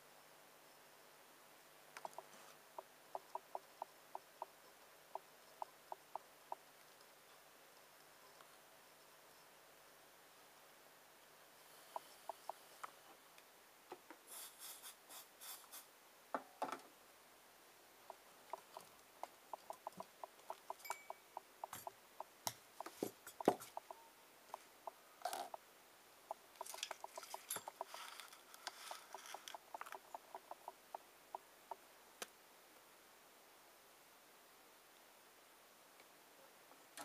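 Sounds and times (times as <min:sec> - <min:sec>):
metal parts and wires clattering: 0:26.6 - 0:29.5.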